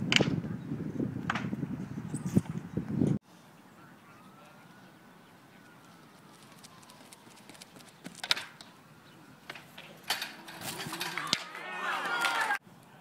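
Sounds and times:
quick footfalls on runway: 6.2s - 8.4s.

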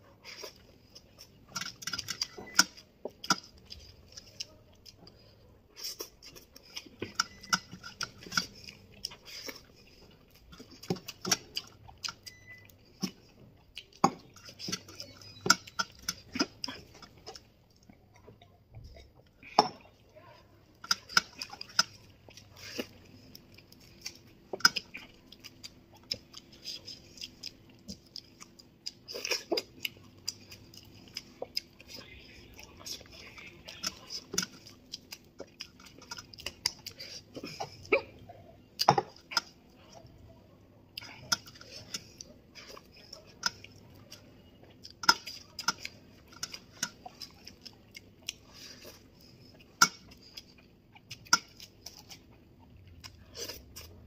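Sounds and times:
person chewing and lip smacking: 0.2s - 19.4s, 20.8s - 54.0s.

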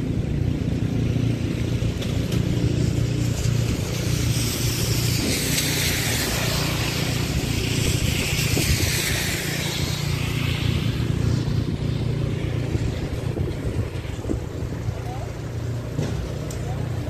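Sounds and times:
low traffic hum: 0.0s - 17.0s
tyres on wet asphalt: 0.0s - 17.0s.

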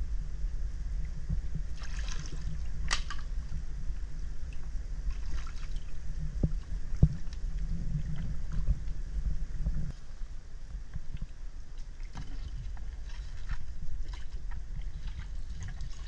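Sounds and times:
steady low rumble: 0.0s - 16.0s
water trickling: 1.8s - 9.4s, 11.1s - 16.0s.

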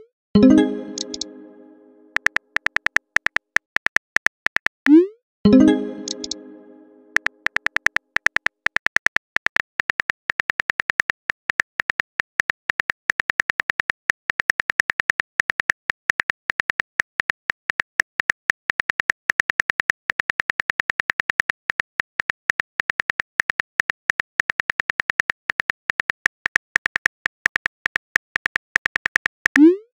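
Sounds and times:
phone keyboard typing clicks: 0.8s - 1.3s, 2.1s - 4.8s, 5.9s - 6.5s, 7.1s - 29.7s.

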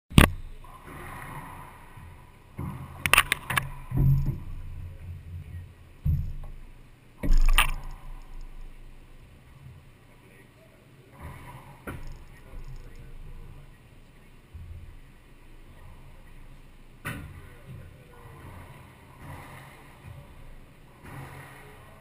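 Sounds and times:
low thuds: 0.1s - 9.3s.

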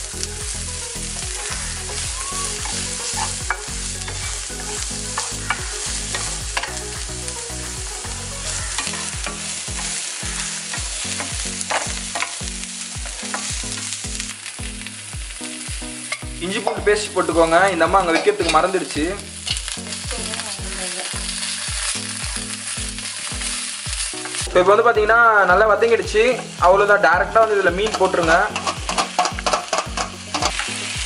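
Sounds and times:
food sizzling in oil: 0.0s - 31.0s
low pulsing beat: 0.0s - 31.0s
wooden spatula scraping pan: 27.8s - 30.7s.

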